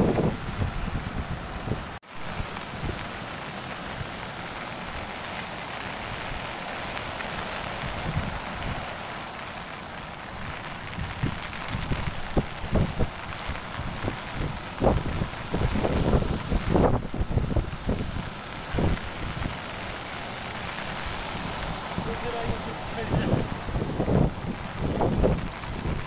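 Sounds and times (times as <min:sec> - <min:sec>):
wind buffeting microphone: 0:00.0 - 0:02.0, 0:07.8 - 0:08.9, 0:10.3 - 0:19.6, 0:20.9 - 0:26.0
ocean surf breaking: 0:00.0 - 0:26.0.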